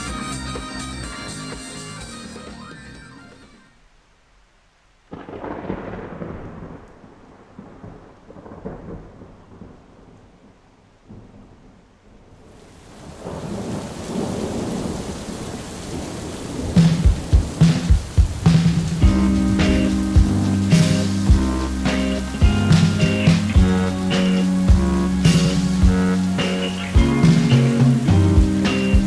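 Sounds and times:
rain hiss: 3.6 - 29.0
thunder crack and rumble: 5.1 - 10.5, 13.0 - 26.3.

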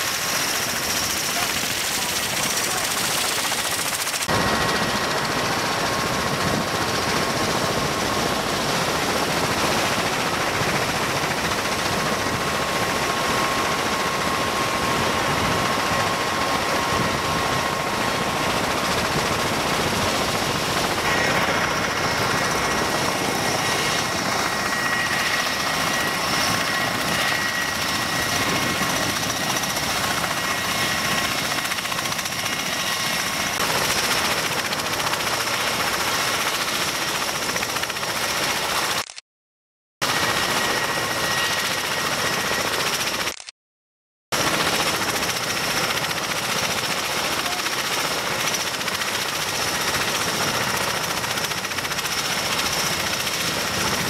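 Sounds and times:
high turbine whine: 0.0 - 37.0
aircraft rotor and engine noise: 0.0 - 39.2, 40.0 - 43.5, 44.3 - 54.0.

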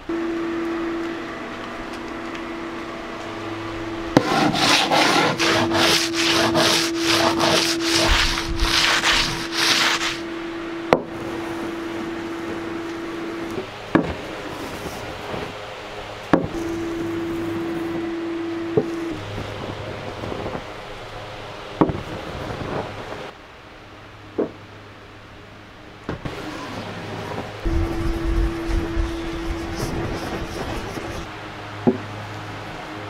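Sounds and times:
steady hum: 0.0 - 23.3, 27.5 - 33.0
wood rubbed by hand: 4.2 - 10.2, 27.6 - 31.3.

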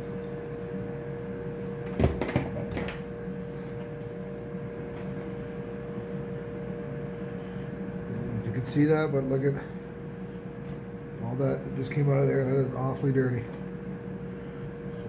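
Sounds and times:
steady hum: 0.0 - 15.0.

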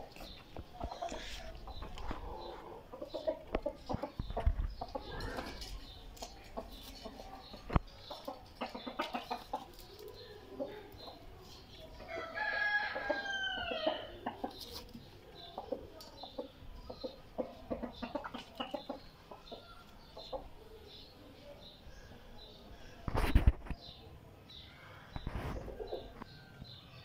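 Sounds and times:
chickens clucking: 0.0 - 27.0
rooster crowing: 12.1 - 14.1.

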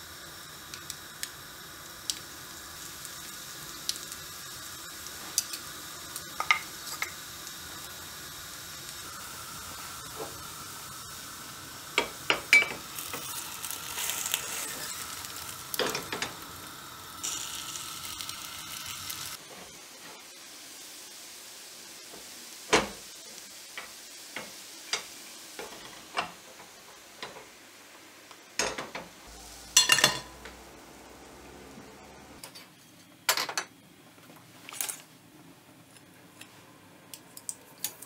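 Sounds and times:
batter sizzling in metal mold: 0.0 - 21.1, 29.3 - 32.5
dishes clinking: 12.0 - 12.8, 29.7 - 30.4.

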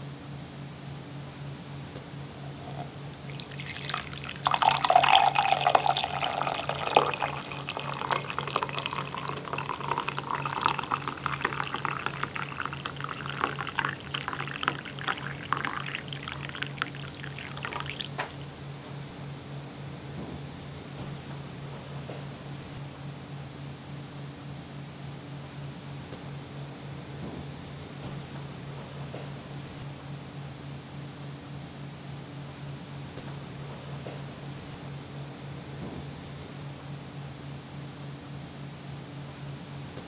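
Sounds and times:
steady low hum: 0.0 - 40.0
coffee pouring into mug: 2.5 - 18.5.

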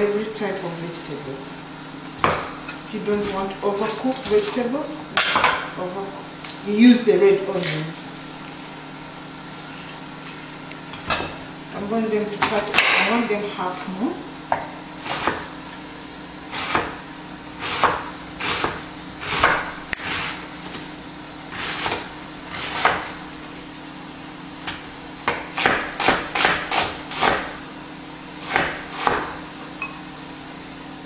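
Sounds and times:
knife chopping on wooden board: 2.2 - 2.6, 14.5 - 15.4, 16.5 - 17.0, 17.6 - 20.4, 21.5 - 23.2, 24.6 - 27.6, 28.4 - 29.4.

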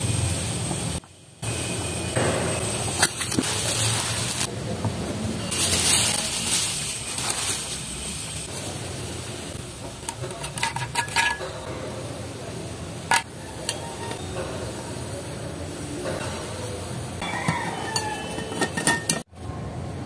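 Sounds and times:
bubble wrap crinkling: 5.5 - 8.4.

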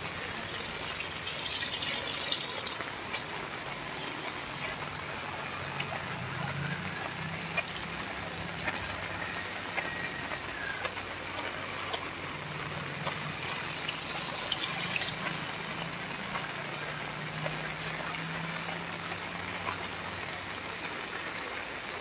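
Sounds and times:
heavy rain on road and trees: 0.0 - 22.0.

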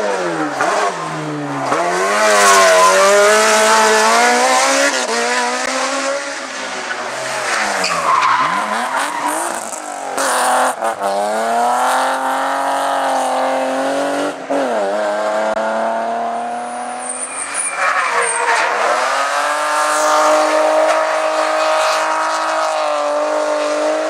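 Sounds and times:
race car engines at full throttle: 0.0 - 24.0
tyre squeal: 7.2 - 10.3, 16.7 - 19.4.

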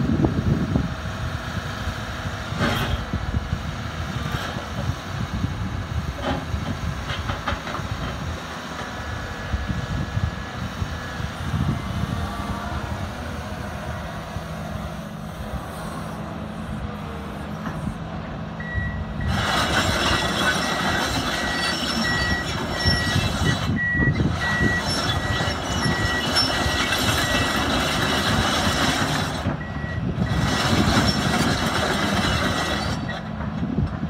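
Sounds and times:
excavator diesel engine: 0.0 - 34.0
machine warning alarm beeping: 18.6 - 19.4, 20.7 - 27.7.

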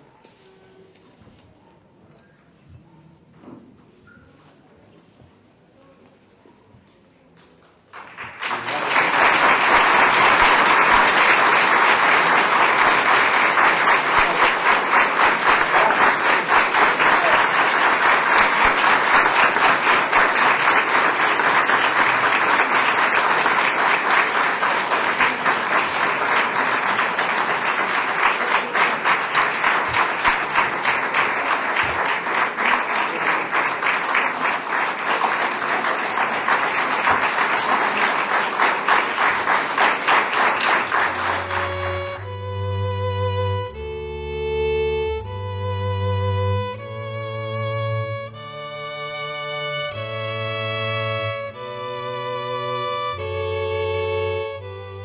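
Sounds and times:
audience applauding: 7.8 - 42.4.

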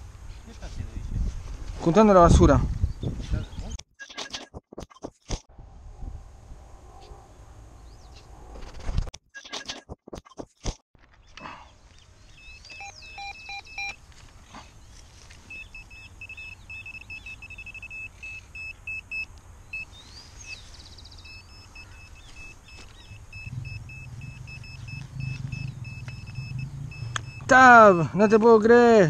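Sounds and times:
high-pitched detector beeps: 4.0 - 4.5, 12.4 - 14.0, 15.4 - 20.6, 21.2 - 28.6.

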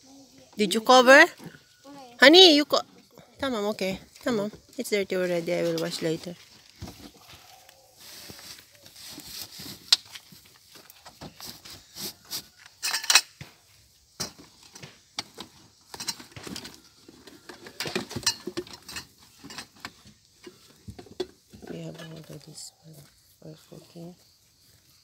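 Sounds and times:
objects clattering and rustling: 3.4 - 22.8.

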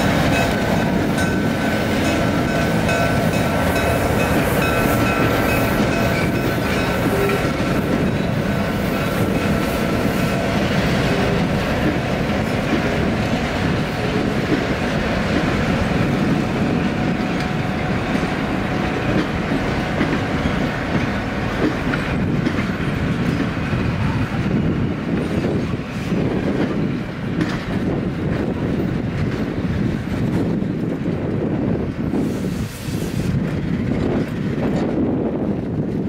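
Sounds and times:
wheels clacking over rail joints: 0.0 - 23.8, 26.5 - 31.0
steel wheels rumbling on rails: 0.0 - 36.0.

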